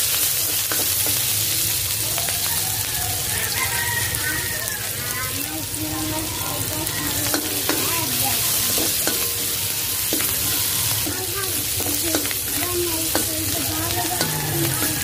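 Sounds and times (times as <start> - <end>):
onion and garlic sizzling in oil: 0.0 - 15.0
spatula scraping a pan: 6.3 - 15.0.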